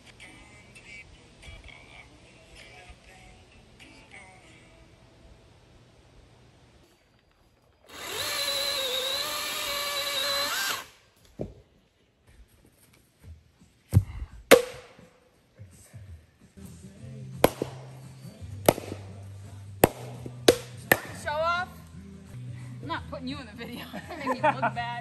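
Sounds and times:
chainsaw running: 7.9s - 11.0s
axe splitting firewood: 14.0s - 14.9s, 17.4s - 17.9s, 18.6s - 19.0s, 19.8s - 21.1s
low background music: 14.5s - 25.0s.

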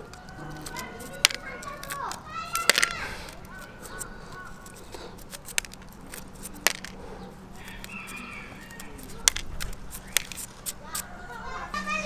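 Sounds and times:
eggshell clicking and snapping: 0.0s - 11.1s.

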